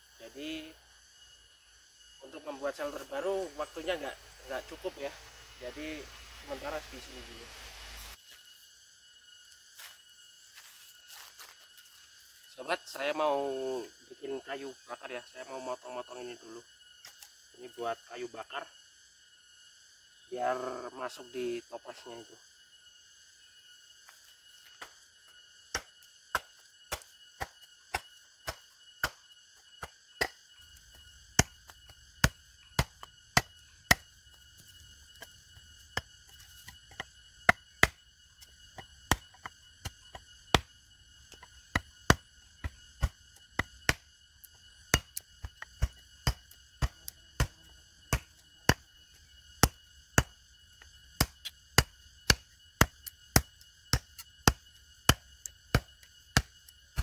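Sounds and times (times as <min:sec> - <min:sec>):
firewood being chopped: 0:25.7 - 0:29.2, 0:29.8 - 0:30.4, 0:31.3 - 0:34.1, 0:35.1 - 0:40.7, 0:41.3 - 0:48.9, 0:49.6 - 0:57.0.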